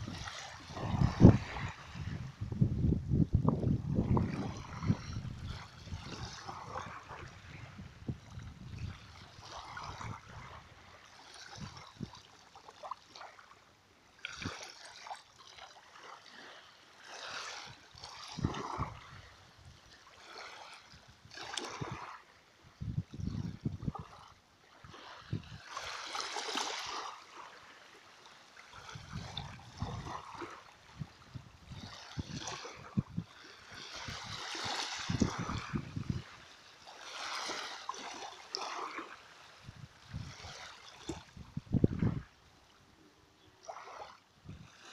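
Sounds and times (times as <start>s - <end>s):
sea water lapping and splashing: 0.0s - 44.9s.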